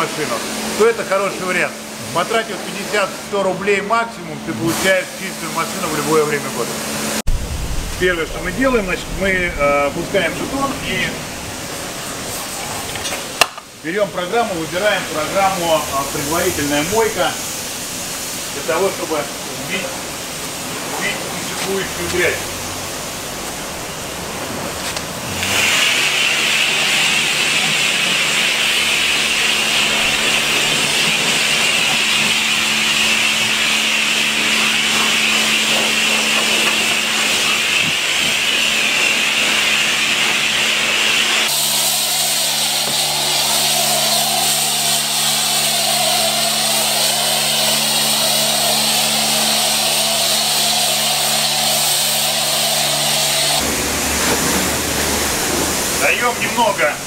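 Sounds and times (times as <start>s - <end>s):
low pump hum: 7.2s - 12.9s
pressure washer spray hissing: 14.1s - 57.0s.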